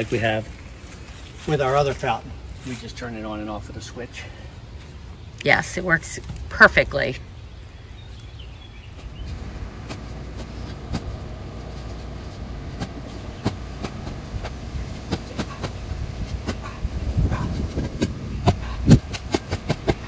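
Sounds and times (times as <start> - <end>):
low rumble: 6.2 - 20.0.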